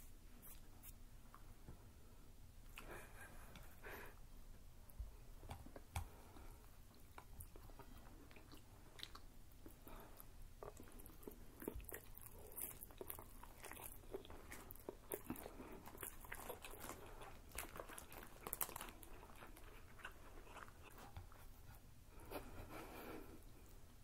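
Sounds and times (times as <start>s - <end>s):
chewing with wet mouth clicks: 5.4s - 9.8s, 10.6s - 21.4s.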